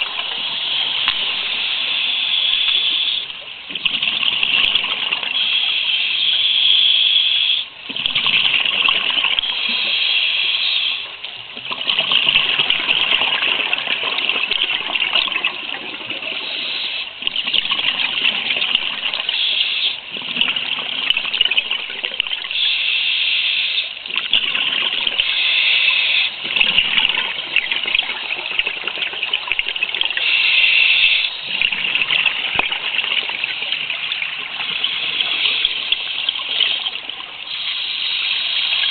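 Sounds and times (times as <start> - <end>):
regulator hiss: 0.0 - 3.4, 5.2 - 7.7, 9.3 - 11.2, 16.2 - 17.2, 19.1 - 20.1, 22.5 - 24.0, 25.1 - 26.5, 30.1 - 31.6, 33.5 - 38.9
underwater bubbling exhalation: 7.8 - 10.1, 11.6 - 22.8, 23.8 - 38.2.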